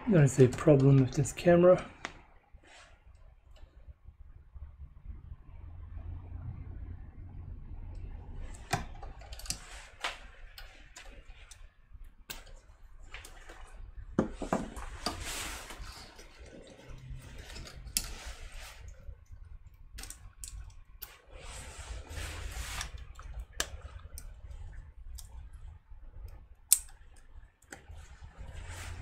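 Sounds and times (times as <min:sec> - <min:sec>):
plastic parts clicking: 0:26.2 - 0:27.9.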